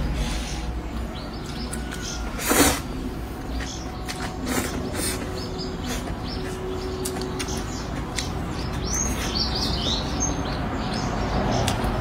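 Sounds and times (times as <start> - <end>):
chewing and mouth smacks: 6.0 - 9.3.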